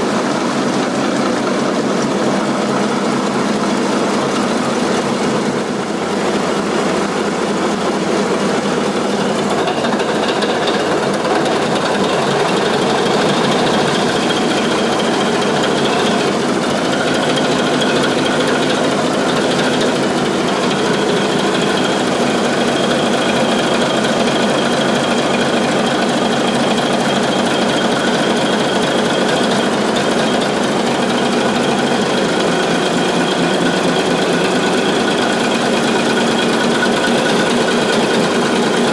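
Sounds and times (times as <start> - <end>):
diesel engine clatter: 0.0 - 38.9.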